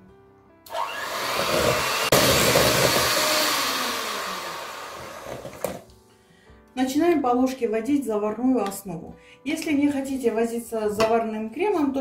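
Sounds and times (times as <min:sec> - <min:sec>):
electric hand mixer whipping cream: 0:00.7 - 0:05.8.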